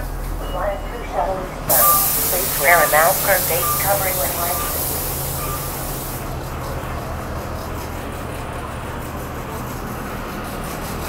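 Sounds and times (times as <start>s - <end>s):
buses idling: 0.0s - 11.0s
air hiss: 1.7s - 6.3s.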